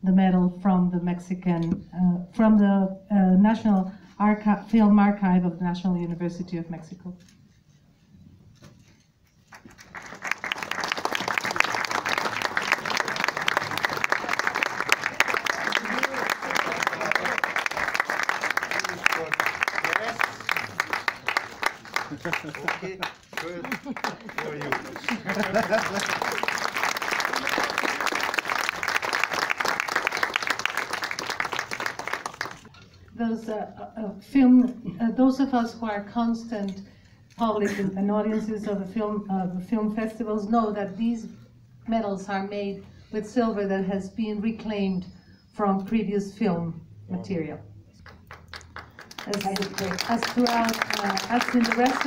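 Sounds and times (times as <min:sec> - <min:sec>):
audience applauding: 0:09.5 - 0:32.7, 0:48.0 - 0:52.0.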